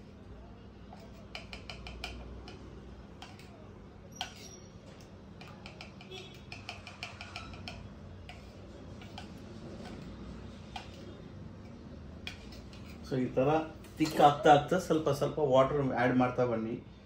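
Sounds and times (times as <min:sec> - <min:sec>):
spoon scraping cup: 0:00.9 - 0:13.1.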